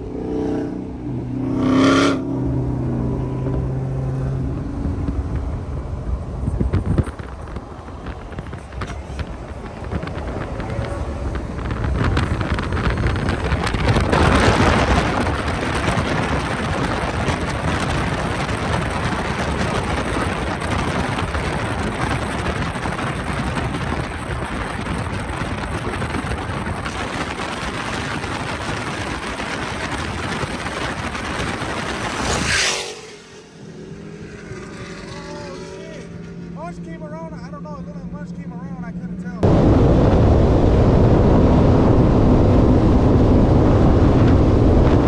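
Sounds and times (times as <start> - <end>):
wind and road noise: 0.0 - 45.0.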